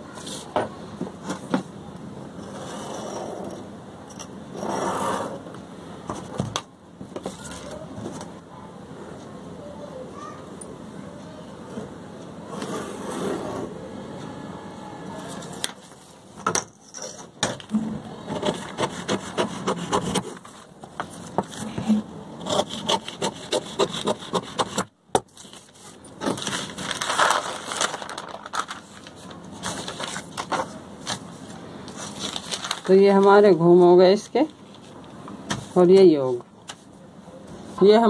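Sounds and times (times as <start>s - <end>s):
pen scratching along ruler: 18.4s - 20.3s, 22.4s - 24.9s
paper being folded: 25.3s - 33.5s.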